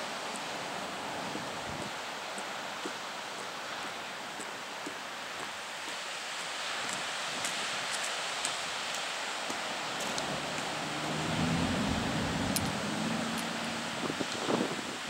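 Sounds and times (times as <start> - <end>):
surf on a seashore: 0.0 - 15.0
wind: 0.0 - 15.0
faint ticks: 6.9 - 11.2, 12.4 - 13.6
low rumbling hum: 10.0 - 14.6.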